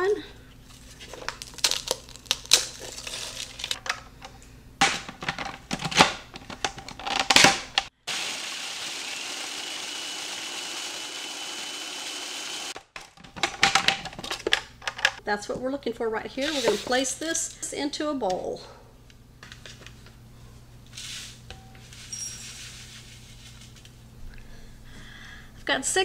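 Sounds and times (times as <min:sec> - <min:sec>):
cones crushed by hand crackling: 0:00.7 - 0:04.1, 0:04.8 - 0:07.9
food processor motor whining: 0:08.1 - 0:12.8.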